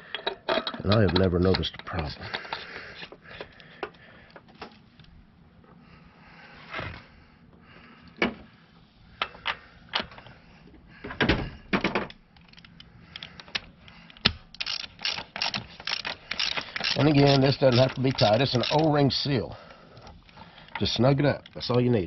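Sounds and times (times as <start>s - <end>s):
ratchet clicks: 12.4s - 19.0s.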